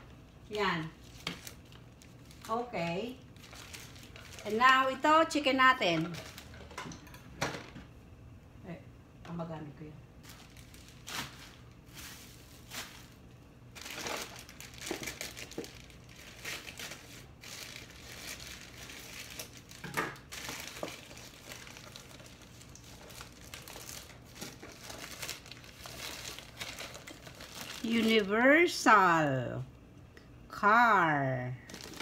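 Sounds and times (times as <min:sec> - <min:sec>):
plastic mailer crinkling and tearing: 0:01.0 - 0:02.6, 0:03.2 - 0:05.0, 0:06.0 - 0:06.7, 0:10.2 - 0:28.3, 0:31.6 - 0:32.0.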